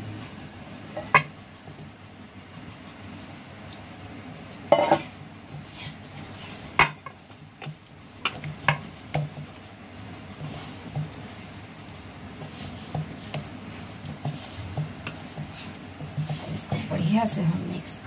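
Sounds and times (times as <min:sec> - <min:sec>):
hands rubbing dough: 0:05.4 - 0:18.0.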